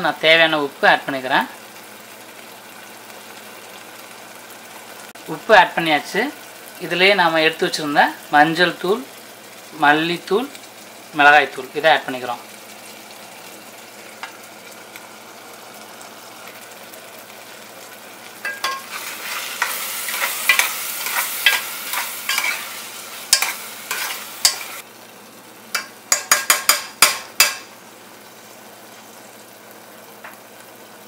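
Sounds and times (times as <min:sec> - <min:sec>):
masala sizzling in a pan: 0:00.0 - 0:31.0
spoon stirring and scraping: 0:18.4 - 0:24.8
spoon clicking against pan: 0:25.7 - 0:27.7.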